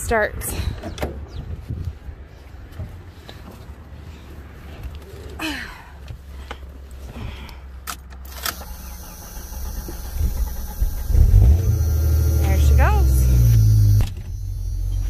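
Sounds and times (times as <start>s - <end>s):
ignition clicks: 7.8s - 15.0s.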